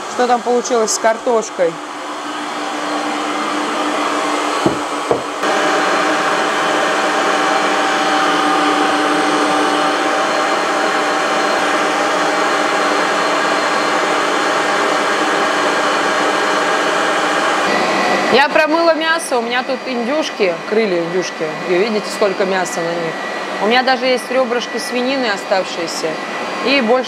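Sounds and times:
stand mixer motor whirring: 0:00.0 - 0:19.3.

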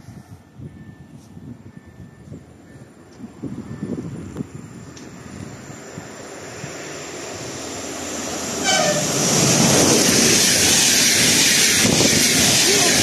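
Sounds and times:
locomotive rumble: 0:00.0 - 0:13.0
train rushing past: 0:01.7 - 0:13.0
train horn toot: 0:08.6 - 0:09.3.

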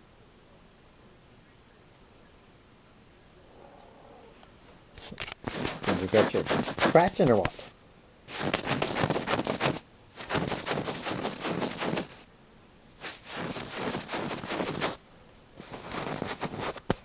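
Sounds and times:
cat claws scratching: 0:05.0 - 0:07.7, 0:08.3 - 0:12.2, 0:13.0 - 0:15.0, 0:15.6 - 0:17.0.

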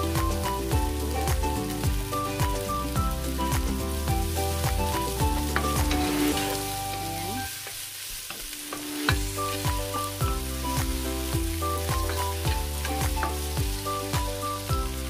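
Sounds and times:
background music with beat: 0:00.0 - 0:06.8, 0:08.7 - 0:15.0
vegetables sizzling in pot: 0:00.0 - 0:15.0
wooden spoon scraping pan: 0:05.5 - 0:06.8.

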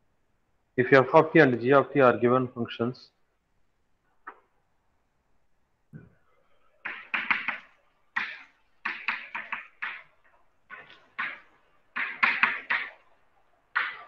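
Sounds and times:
chalk scratching on blackboard: 0:06.8 - 0:14.0.

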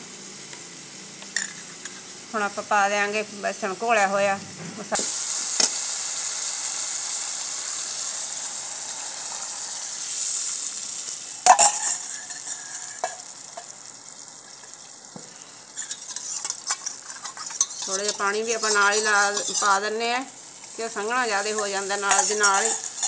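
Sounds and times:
masala sizzling in hot oil: 0:00.0 - 0:23.0
batter being poured: 0:05.0 - 0:23.0
ladle stirring in pan: 0:05.0 - 0:23.0.

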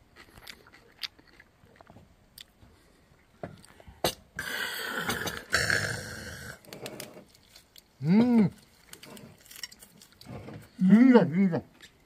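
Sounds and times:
man humming mmm of relish: 0:04.4 - 0:06.6.

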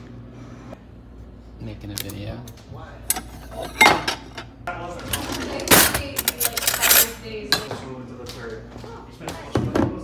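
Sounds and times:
ceramic dishes clinking: 0:03.2 - 0:04.5.

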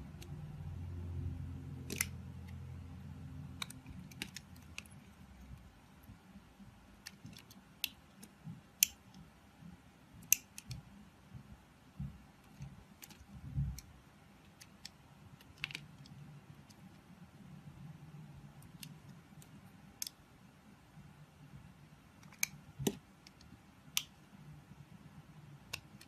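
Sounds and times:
low hum: 0:00.0 - 0:06.2.

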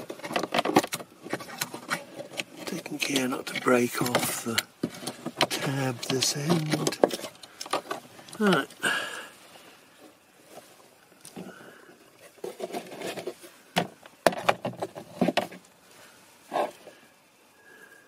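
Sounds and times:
plastic clicks and scrapes: 0:00.0 - 0:08.6, 0:12.2 - 0:15.7.

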